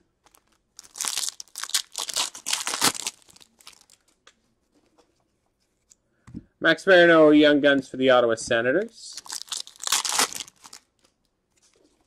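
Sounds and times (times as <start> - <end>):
foil wrapper crinkling and tearing: 0.2 - 4.2, 9.1 - 11.9.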